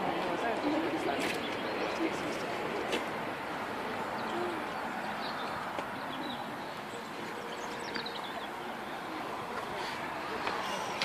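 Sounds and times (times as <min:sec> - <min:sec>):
steady outdoor hiss: 0:00.0 - 0:11.0
small birds chirping faintly: 0:03.6 - 0:10.2.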